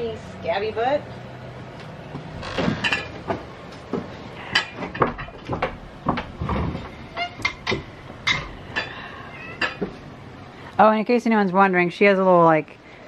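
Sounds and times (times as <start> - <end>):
objects knocking and clattering: 2.2 - 10.0.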